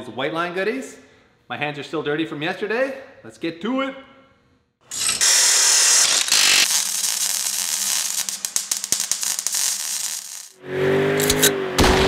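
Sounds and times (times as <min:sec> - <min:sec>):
loud burst of hiss: 0:04.9 - 0:10.6.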